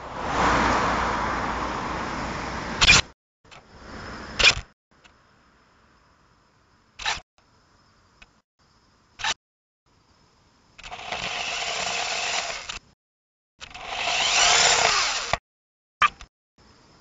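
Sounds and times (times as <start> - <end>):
robot motors whirring: 10.8 - 12.8, 13.6 - 15.4.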